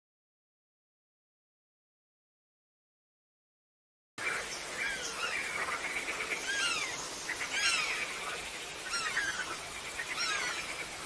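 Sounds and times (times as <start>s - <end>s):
bats chirping: 4.2s - 11.0s.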